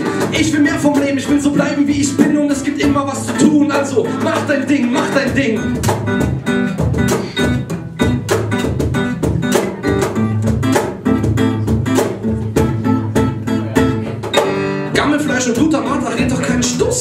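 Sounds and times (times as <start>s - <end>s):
acoustic guitar strumming: 0.0s - 17.0s
cajon beat: 0.0s - 17.0s.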